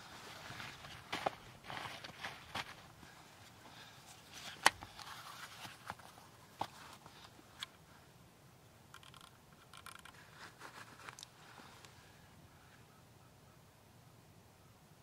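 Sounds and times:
faint rustling: 0:09.8 - 0:12.8.

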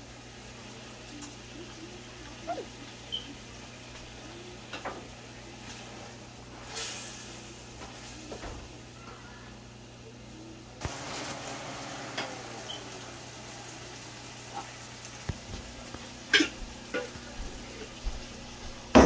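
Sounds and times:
seeds sizzling in hot oil: 0:05.3 - 0:09.0, 0:10.8 - 0:16.9.

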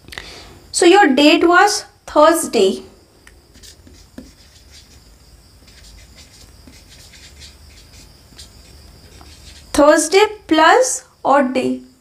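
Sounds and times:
marker scratching on whiteboard: 0:03.5 - 0:10.1.

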